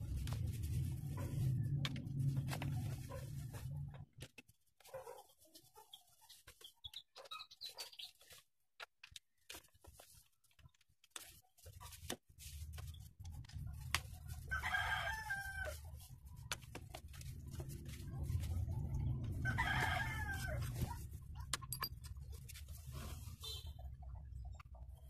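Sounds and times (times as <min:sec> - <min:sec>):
low steady rumble: 0:00.0 - 0:04.1, 0:15.4 - 0:23.4
rooster crowing: 0:14.5 - 0:15.8, 0:19.4 - 0:20.8.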